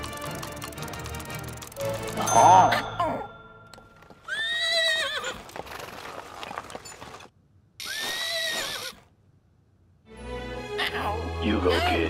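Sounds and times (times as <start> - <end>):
hooves clip-clopping: 3.8 - 7.3
horse whinnying: 4.2 - 5.6, 7.8 - 9.1.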